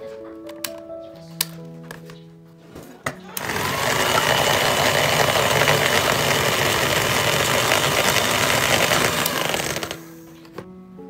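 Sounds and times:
electric hand mixer whisking: 3.3 - 10.1.

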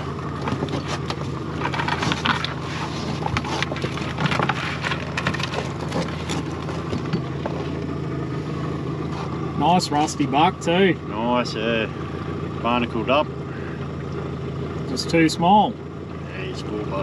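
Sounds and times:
boat motor idling: 0.0 - 17.0
crab pot clicking and rattling: 0.4 - 7.6.

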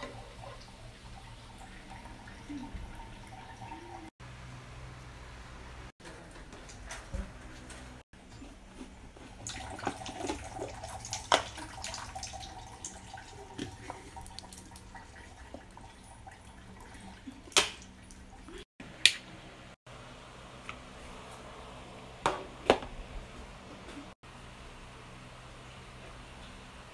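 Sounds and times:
water pouring into plastic cup: 9.4 - 16.9.

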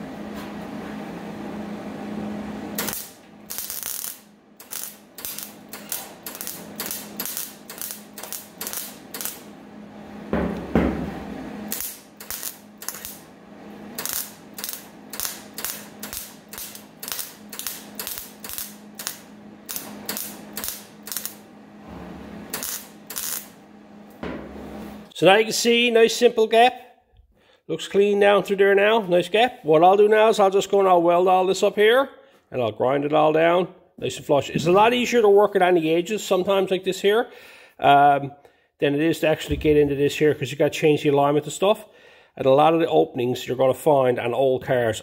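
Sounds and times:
welder crackling: 2.6 - 9.6, 11.6 - 21.5, 22.4 - 23.6.

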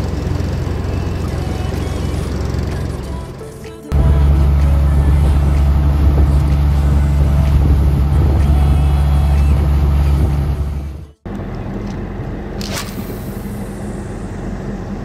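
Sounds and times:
boat engine drone: 0.0 - 15.0.

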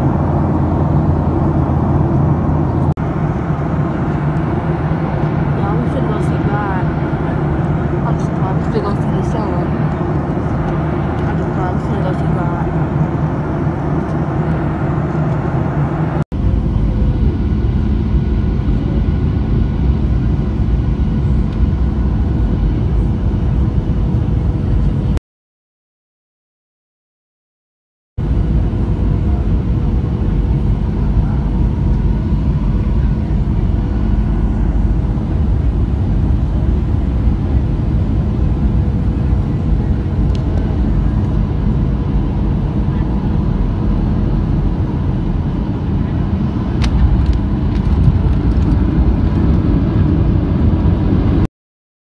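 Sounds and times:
jet engine and airflow rumble: 0.0 - 25.2, 28.2 - 51.5.

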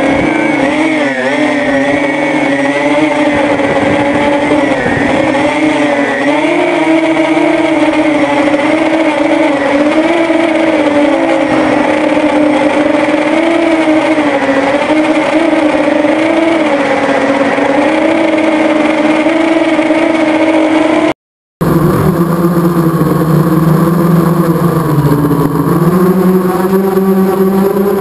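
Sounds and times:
drone motors and propellers: 0.0 - 28.0.

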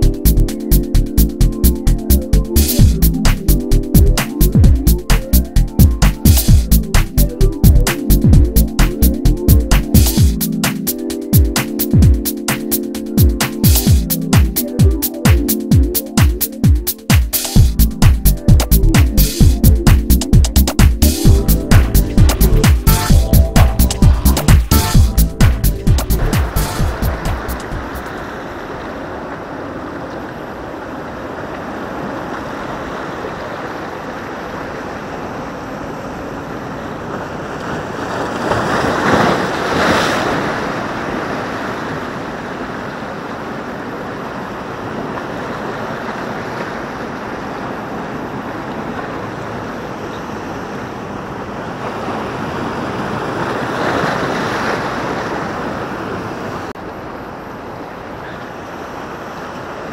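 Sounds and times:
waves breaking: 7.8 - 59.9
surf on rocky shoreline: 20.7 - 59.9.

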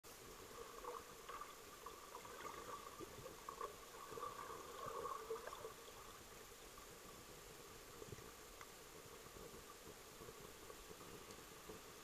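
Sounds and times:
low hum and hiss: 0.1 - 12.0
underwater crackles and gurgles: 0.1 - 12.0.

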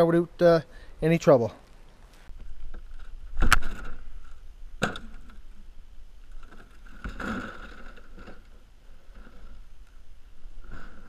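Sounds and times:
rope scraping and rustling: 6.3 - 11.0.

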